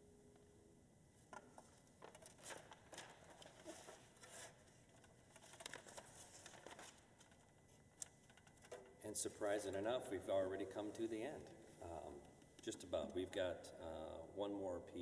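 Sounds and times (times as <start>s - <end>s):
sheet music rustling: 1.6s - 7.8s.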